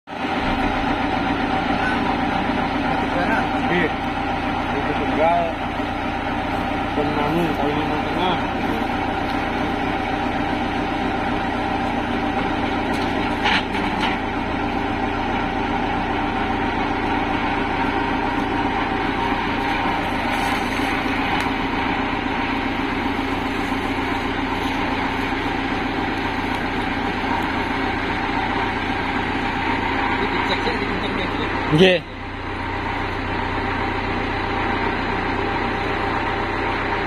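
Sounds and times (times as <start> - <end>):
excavator diesel engine running: 0.1 - 37.0.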